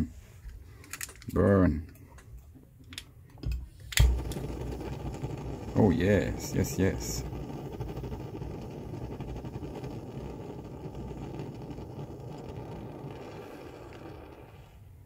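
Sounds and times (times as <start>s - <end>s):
stove burner flame rushing: 3.6s - 15.0s.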